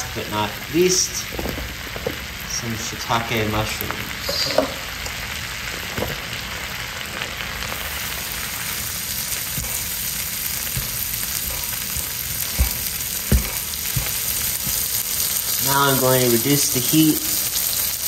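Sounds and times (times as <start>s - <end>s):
mushrooms sizzling in a pan: 0.0s - 18.0s
tongs knocking against pan: 9.5s - 14.9s.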